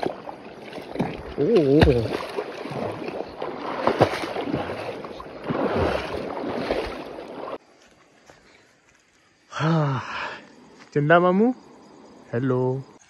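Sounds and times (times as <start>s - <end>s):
water splashing from wading: 0.0s - 7.6s.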